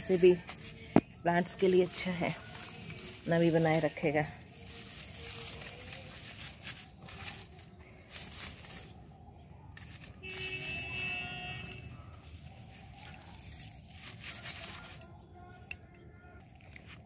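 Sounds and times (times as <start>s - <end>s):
dry fibres rustling and crackling: 0.0s - 17.0s.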